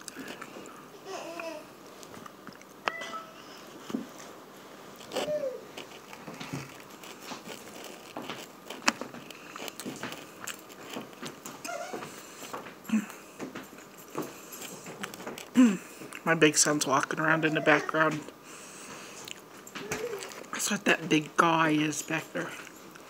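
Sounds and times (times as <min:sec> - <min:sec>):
biting fried chicken: 0:05.0 - 0:13.2.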